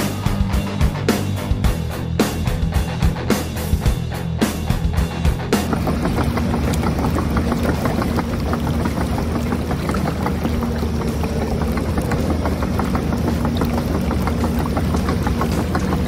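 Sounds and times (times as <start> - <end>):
track links clicking rattle: 5.2 - 16.0.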